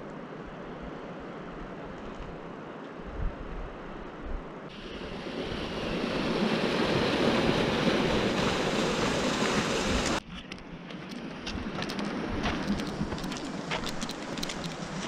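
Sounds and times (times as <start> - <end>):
steady rushing noise: 0.0 - 10.2.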